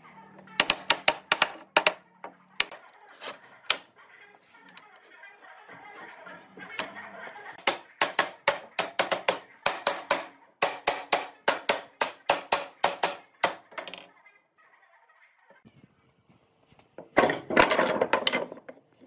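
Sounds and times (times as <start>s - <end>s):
wooden block knocking on wood: 0.6s - 2.8s.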